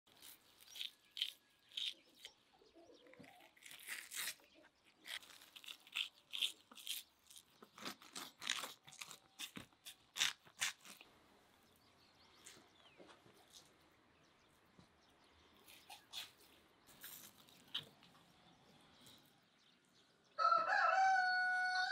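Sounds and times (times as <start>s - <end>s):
membrane peeling off raw liver: 0.1s - 2.4s, 3.1s - 11.1s.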